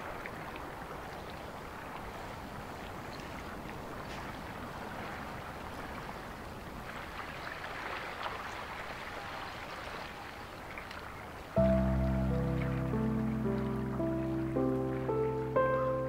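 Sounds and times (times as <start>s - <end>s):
faint ticks and crackles: 0.0s - 4.6s
loud music chord: 11.6s - 16.0s.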